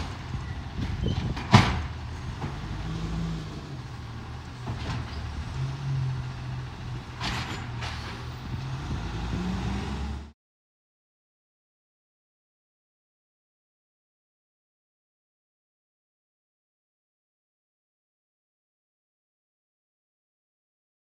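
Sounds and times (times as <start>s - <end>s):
truck engine running: 0.0s - 10.3s.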